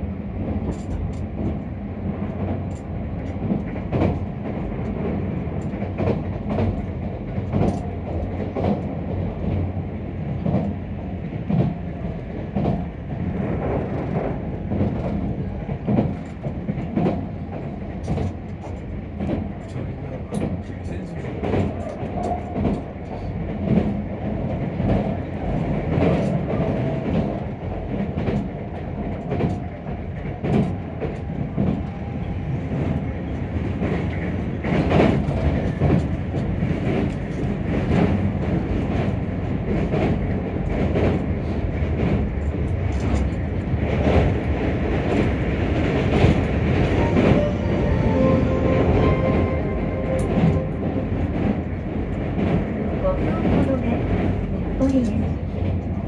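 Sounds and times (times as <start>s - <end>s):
train wheels rumbling on rail: 0.0s - 56.0s
track clicks and knocks: 45.1s - 53.6s.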